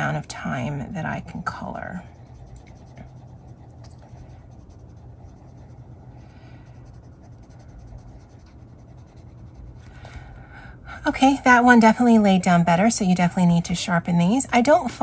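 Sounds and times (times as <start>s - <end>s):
low steady hum: 0.0s - 15.0s
pencil scratching on paper: 1.5s - 9.9s.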